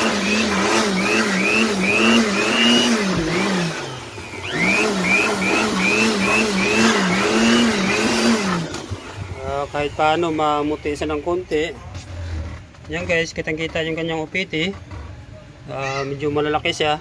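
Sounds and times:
electric air blower whining: 0.0 - 10.0.

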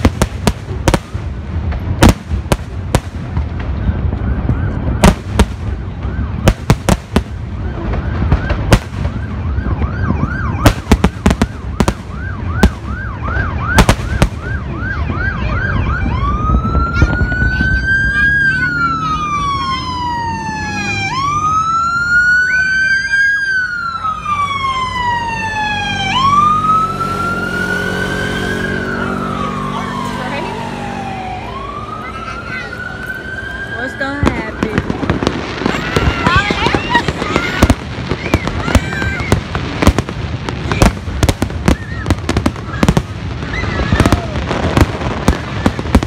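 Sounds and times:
fireworks bangs: 0.0 - 21.4, 31.5 - 46.0
police siren: 2.7 - 46.0.

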